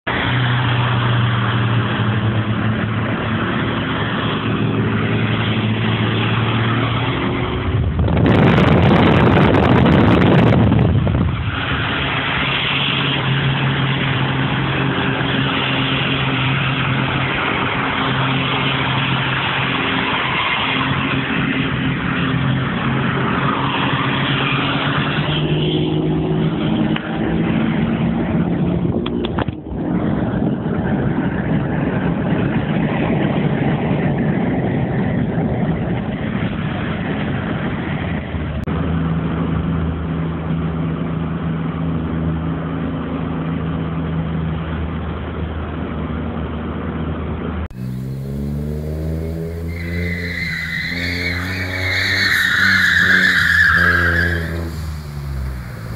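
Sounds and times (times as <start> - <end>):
car engine pulling hard: 44.6 - 55.9
car engine revving: 47.6 - 55.9.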